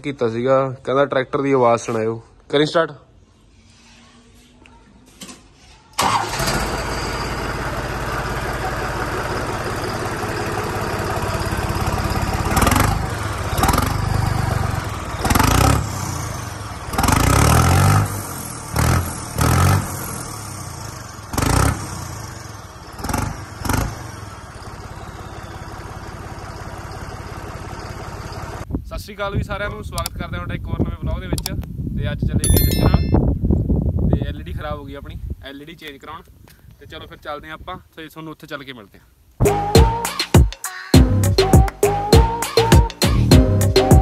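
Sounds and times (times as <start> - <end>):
tractor engine revving: 6.0 - 25.0
whistling exhaust: 24.5 - 27.1, 41.3 - 44.0.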